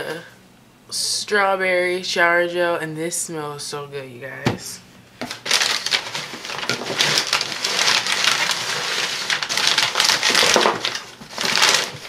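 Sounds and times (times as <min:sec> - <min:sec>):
rustling shredded paper: 0:05.2 - 0:12.0.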